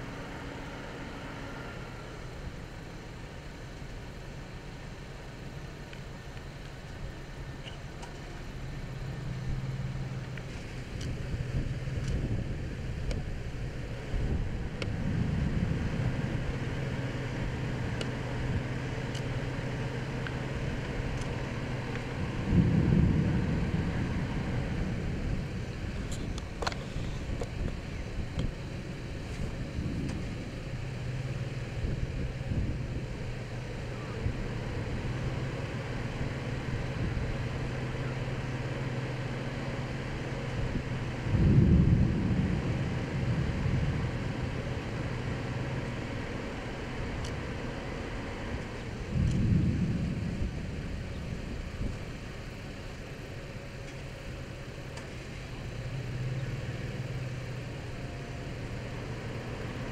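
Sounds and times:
faint wind: 0.0s - 59.9s
vehicle idling hum: 0.0s - 59.9s
distant thunder rolling: 20.7s - 26.7s, 40.7s - 46.1s, 48.8s - 52.6s.

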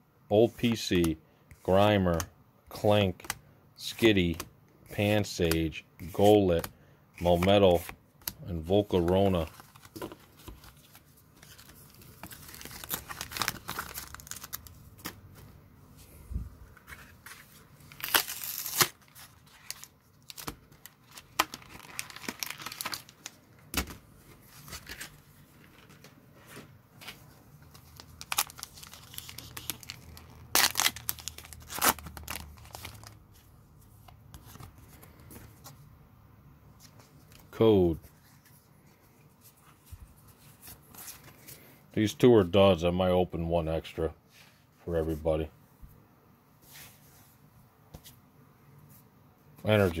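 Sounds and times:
plastic blister crinkling: 7.2s - 15.3s, 16.8s - 24.0s, 27.0s - 33.2s
wrappers ripping: 11.5s - 14.8s, 17.9s - 23.3s, 27.8s - 33.2s.

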